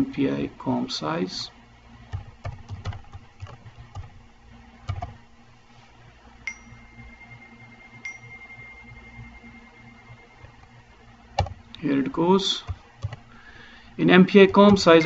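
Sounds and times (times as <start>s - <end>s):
keyboard keystrokes: 2.1s - 4.1s, 4.9s - 5.2s, 11.4s - 11.6s, 12.6s - 13.2s, 14.4s - 15.0s.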